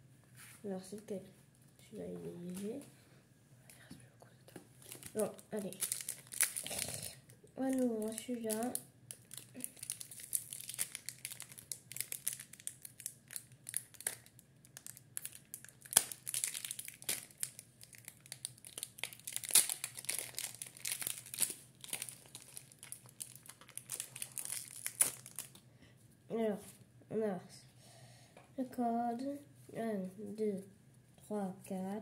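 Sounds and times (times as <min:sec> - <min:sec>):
foil wrapper tearing and crinkling: 0:04.8 - 0:25.6.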